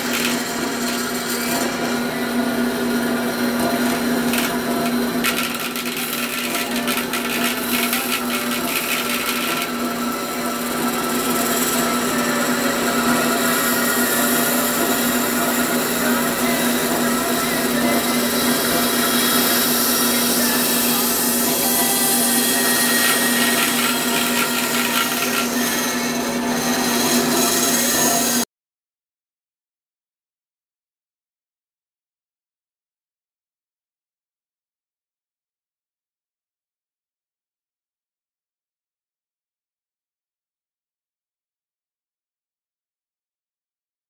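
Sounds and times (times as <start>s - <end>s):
bandsaw motor hum: 0.0s - 28.4s
saw blade cutting: 0.0s - 28.4s.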